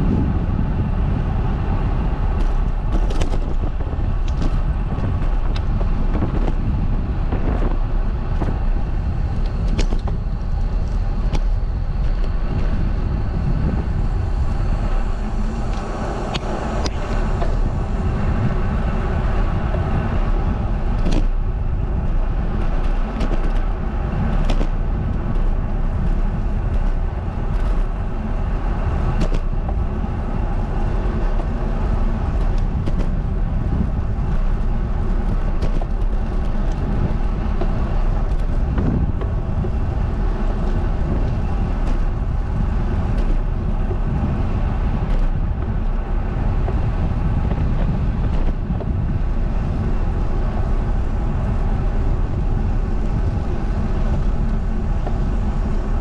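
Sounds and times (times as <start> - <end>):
wind and road rumble: 0.0 - 56.0
small knocks and clicks: 2.4 - 6.6, 9.4 - 12.8, 21.0 - 21.4, 22.6 - 23.7, 24.3 - 27.9, 29.2 - 29.8, 35.2 - 39.8, 45.0 - 46.0, 46.6 - 48.9.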